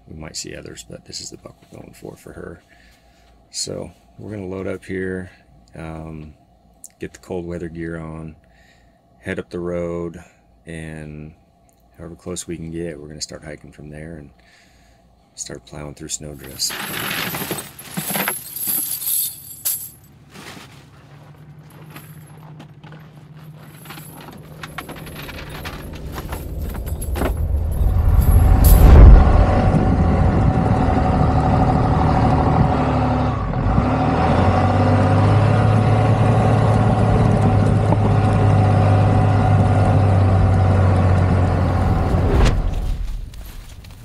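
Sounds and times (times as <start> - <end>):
tyres churning snow: 20.3 - 44.0
pickup truck engine drone: 20.9 - 43.7.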